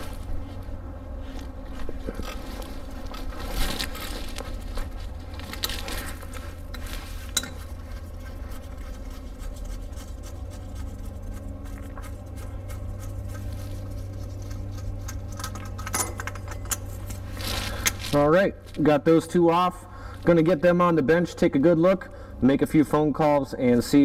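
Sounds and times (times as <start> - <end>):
light scraping and handling: 0.0 - 18.9
steady low hum: 0.0 - 24.0.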